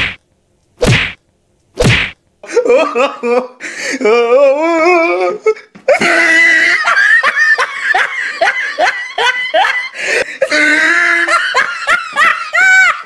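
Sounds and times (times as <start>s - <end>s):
person laughing hard: 2.4s - 4.2s, 5.9s - 13.0s.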